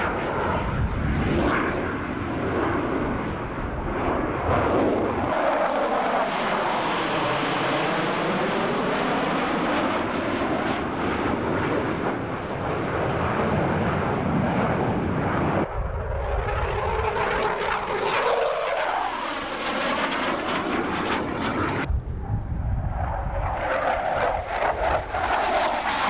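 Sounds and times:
jets flying past: 0.0s - 26.0s.

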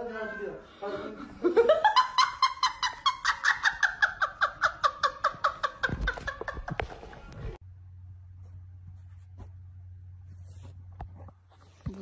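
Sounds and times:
woman laughing hard: 1.4s - 7.3s.

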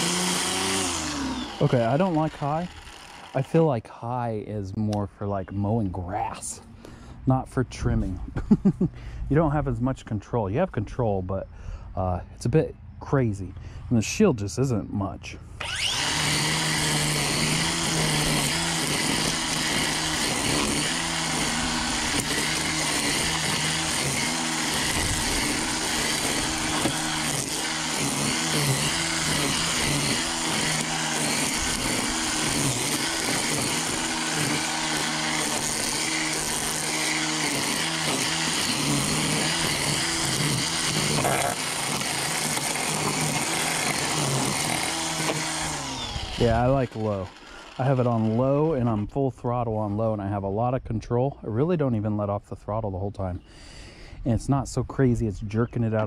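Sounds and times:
string trimmer motor whine: 0.0s - 3.7s, 15.4s - 49.2s
trimmer line whipping through weeds: 15.6s - 48.3s.

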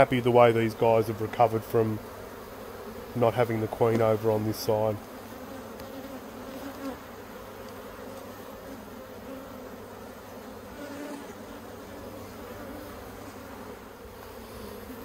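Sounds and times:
bees humming: 0.0s - 15.0s.

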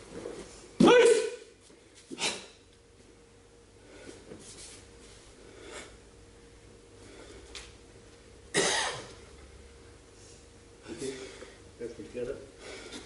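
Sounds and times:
loud cough: 8.5s - 9.1s.

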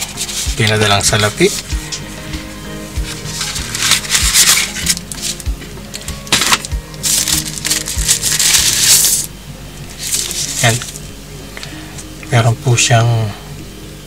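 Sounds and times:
paper packaging crinkling: 0.0s - 1.7s, 3.0s - 9.3s, 9.9s - 11.1s
background music with beat: 0.0s - 12.3s.

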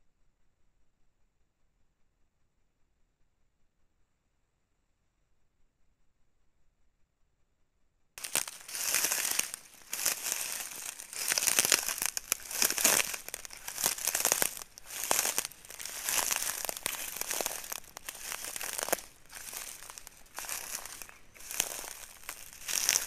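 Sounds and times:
rustling and crackling brush: 8.2s - 23.0s.

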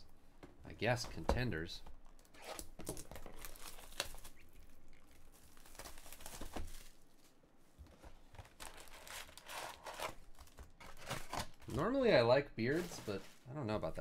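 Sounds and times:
shrink wrap crinkling and tearing: 2.1s - 7.4s, 8.4s - 11.9s.

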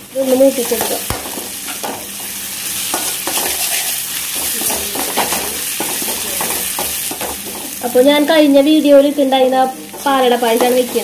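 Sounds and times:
onions sizzling in oil: 0.0s - 11.0s.

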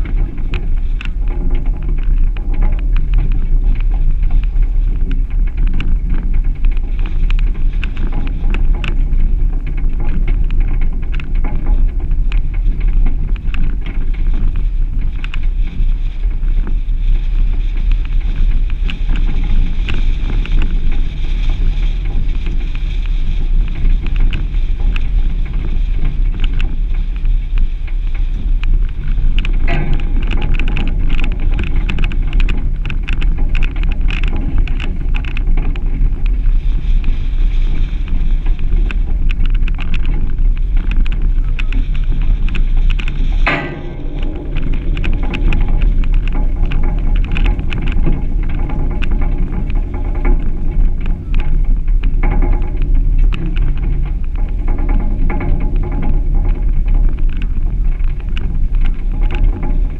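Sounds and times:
vehicle engine and tyres rumbling: 0.0s - 59.9s
wind buffeting microphone: 0.0s - 59.9s
knocks and clicks from track: 29.4s - 35.8s, 42.9s - 57.4s.

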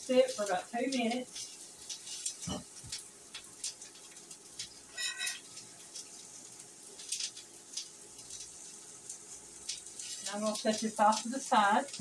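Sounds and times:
onions sizzling in hot oil: 0.0s - 12.0s
short ringing sound: 5.0s - 5.4s.

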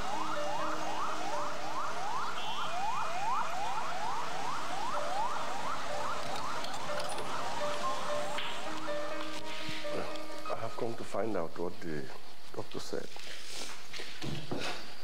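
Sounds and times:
electronic siren yelping: 0.0s - 9.2s.

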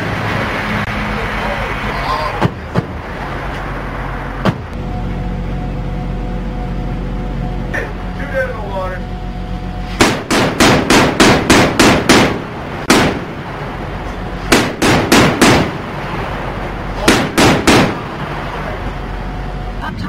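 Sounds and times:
naval deck gun firing bursts: 10.0s - 13.4s, 14.4s - 15.9s, 17.0s - 18.2s.

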